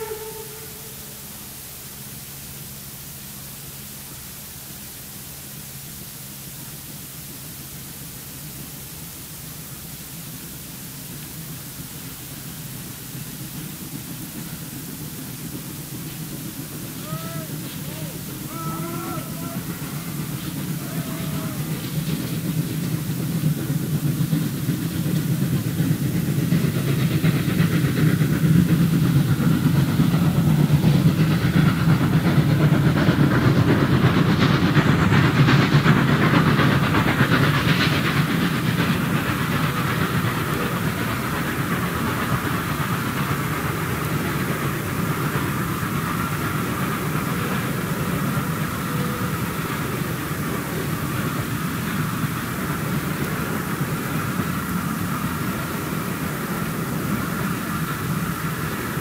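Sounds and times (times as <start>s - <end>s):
steam locomotive hissing: 0.0s - 59.0s
wheels clacking over rail joints: 15.2s - 59.0s.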